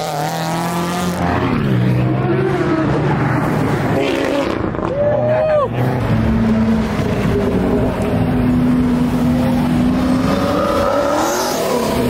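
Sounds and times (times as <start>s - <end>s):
car engine revving: 0.0s - 4.9s.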